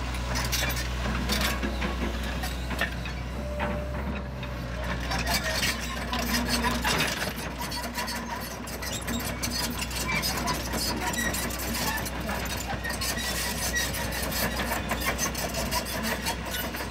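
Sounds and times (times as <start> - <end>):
excavator diesel engine running: 0.0 - 16.9.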